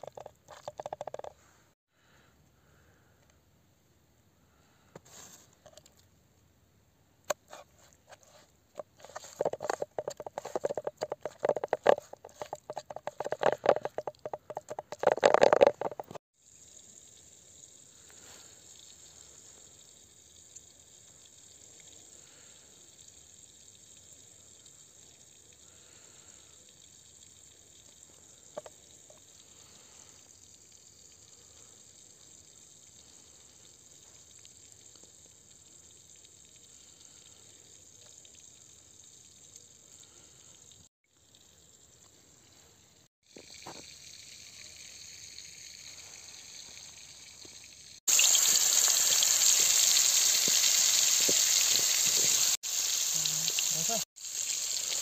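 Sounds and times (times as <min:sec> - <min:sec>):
faint steady hiss: 0:16.4 - 0:55.0.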